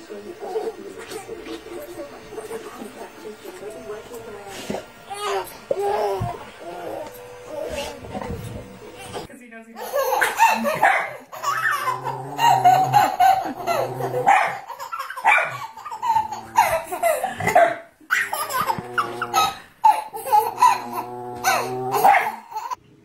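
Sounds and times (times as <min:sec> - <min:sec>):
baby laughing: 0:09.0 - 0:22.8
adults laughing: 0:09.8 - 0:21.0.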